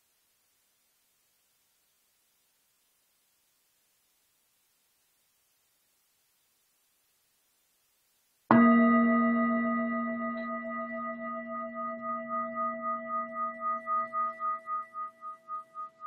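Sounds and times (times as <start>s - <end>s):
meditation bell ringing: 8.5s - 16.0s.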